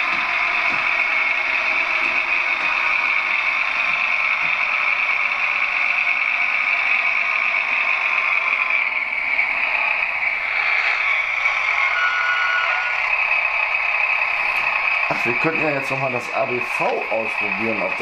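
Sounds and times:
model train running sound drone: 0.0 - 18.0
thin whistle: 11.8 - 12.9.

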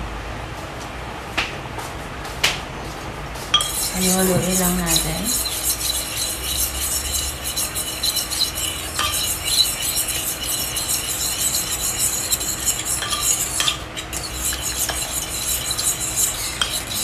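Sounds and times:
spoon clinking against pot: 3.6 - 6.9, 8.6 - 9.9, 11.5 - 17.0
metal spoon stirring in pot: 3.6 - 17.0.

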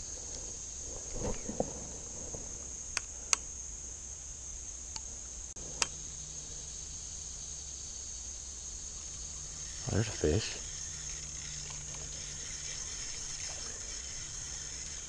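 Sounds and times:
crickets trilling: 0.0 - 15.0
fishing reel clicks: 9.6 - 15.0.

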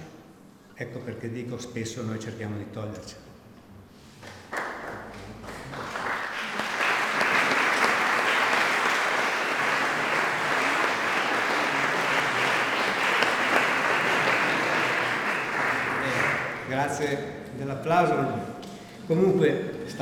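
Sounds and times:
audience applauding: 4.2 - 16.9.

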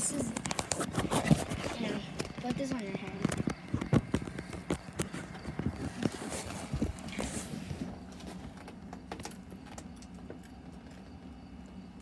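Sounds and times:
handling rustle: 0.1 - 8.6.

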